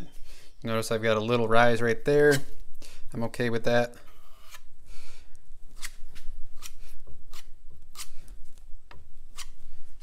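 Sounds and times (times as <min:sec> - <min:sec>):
putty knife scraping filler: 0:04.1 - 0:04.7, 0:05.7 - 0:08.3, 0:09.3 - 0:09.6.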